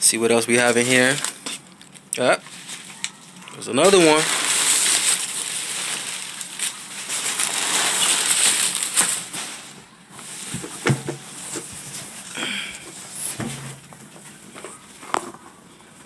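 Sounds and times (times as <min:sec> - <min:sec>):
packing paper rustling: 0:02.2 - 0:12.3.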